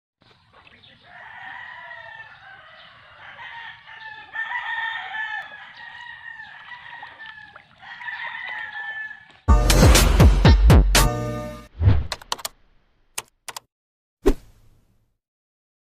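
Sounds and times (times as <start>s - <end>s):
roosters crowing: 0.7s - 9.5s.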